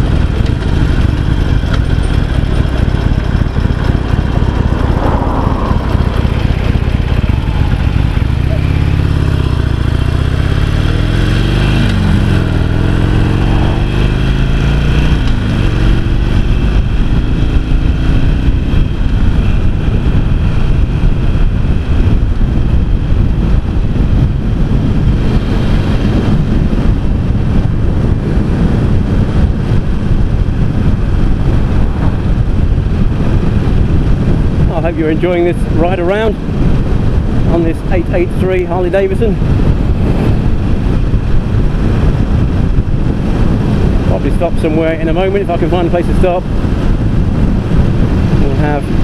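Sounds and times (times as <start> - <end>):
motorcycle engine pulling away: 0.0 - 34.4
rushing wind noise: 0.0 - 49.0.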